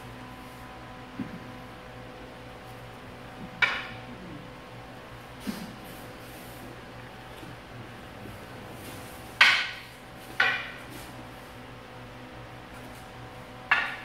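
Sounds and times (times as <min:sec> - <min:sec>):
wooden staffs clacking together: 0:09.4 - 0:10.9, 0:13.7 - 0:14.0.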